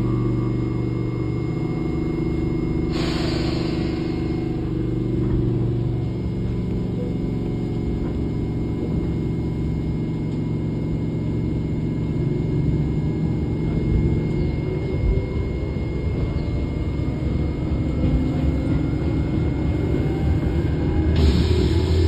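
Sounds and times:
train motor hum: 0.0 - 22.0
train wheels rumbling on rails: 2.9 - 22.0
train knocks: 17.7 - 22.0.

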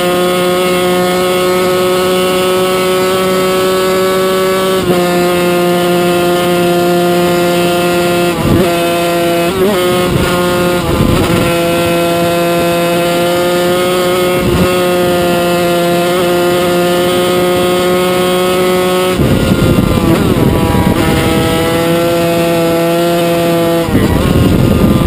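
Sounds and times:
race engine running hard: 0.0 - 25.0
wind noise: 5.8 - 25.0.

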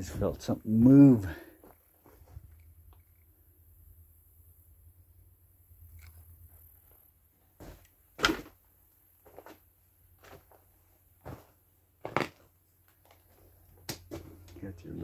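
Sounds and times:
footsteps: 0.0 - 0.6, 1.3 - 2.6, 7.6 - 8.6, 9.2 - 14.7.

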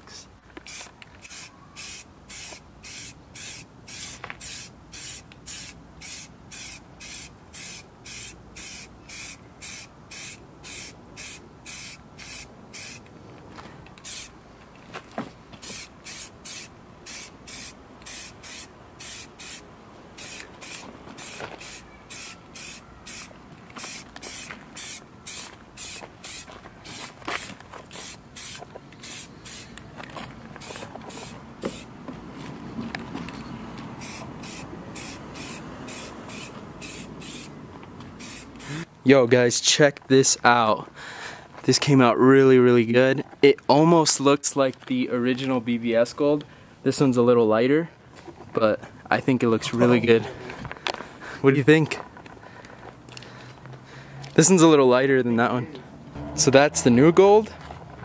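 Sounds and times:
aerosol can spraying short hisses: 0.7 - 13.0, 15.6 - 19.6, 20.2 - 27.0, 27.9 - 29.7, 34.0 - 37.5, 38.2 - 38.9.

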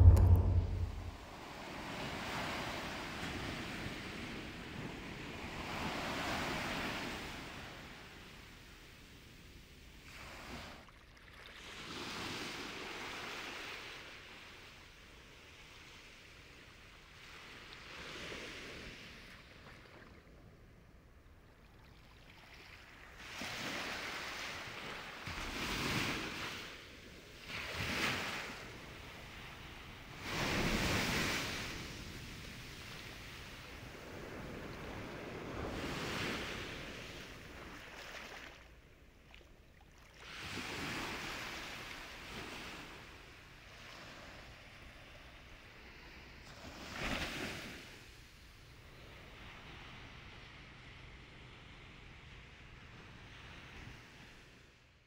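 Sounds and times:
sea waves breaking: 0.0 - 1.5.

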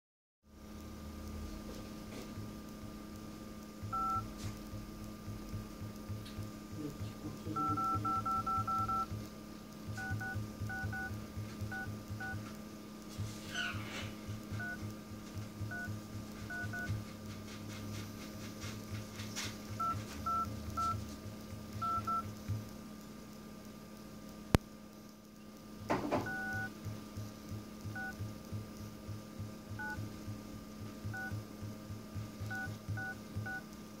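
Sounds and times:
keypad two-tone beeps: 3.9 - 4.3, 7.6 - 9.2, 10.0 - 12.4, 14.6 - 14.8, 15.7 - 15.9, 19.8 - 21.0, 21.8 - 22.3, 26.2 - 26.7, 27.9 - 28.2, 29.8 - 30.0, 31.1 - 31.4, 32.5 - 33.6.

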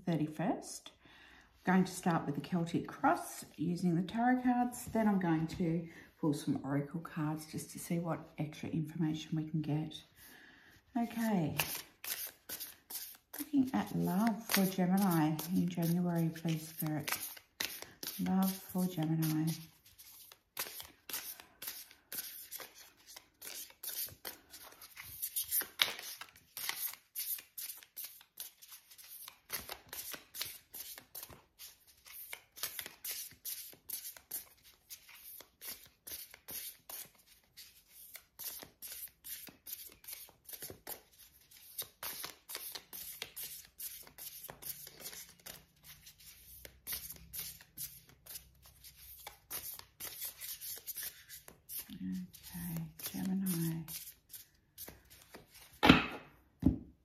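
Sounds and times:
cards being shuffled by hand: 11.0 - 55.8.

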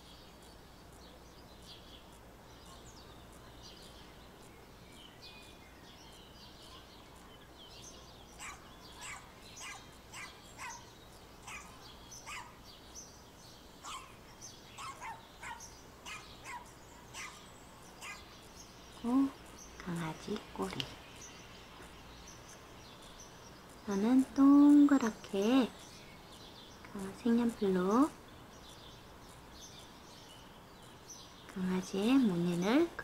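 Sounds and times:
faint bird chirps: 0.0 - 33.0
dog barking: 8.4 - 12.6, 13.8 - 14.2, 14.8 - 17.4, 18.0 - 18.3.

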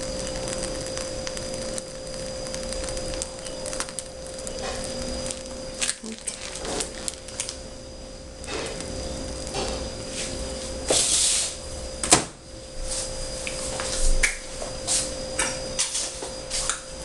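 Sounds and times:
steady electrical hum: 0.0 - 17.0
plastic piping bag rustling: 2.6 - 7.7.

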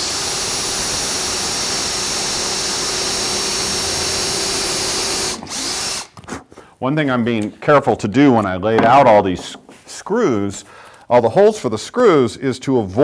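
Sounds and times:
cordless drill whining: 0.0 - 6.3.

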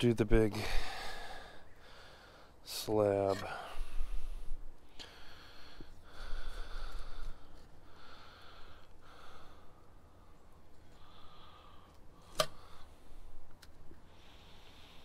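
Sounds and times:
sharp click: 12.3 - 12.6.

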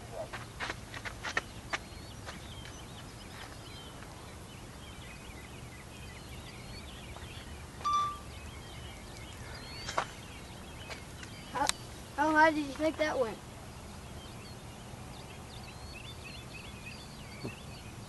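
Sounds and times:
small birds chirping: 0.0 - 18.0
high-pitched call or beep: 7.8 - 8.3.

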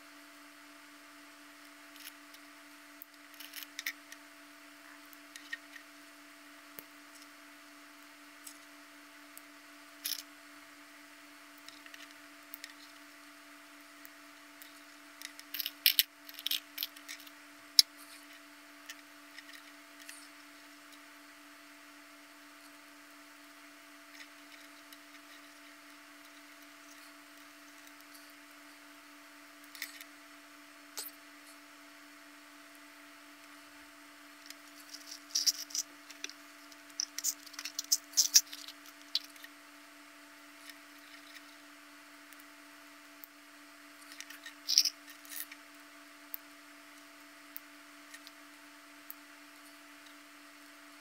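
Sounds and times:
faint steady hum: 0.0 - 51.0
plastic puzzle parts clicking: 34.9 - 36.4, 37.0 - 39.4, 44.2 - 45.4.

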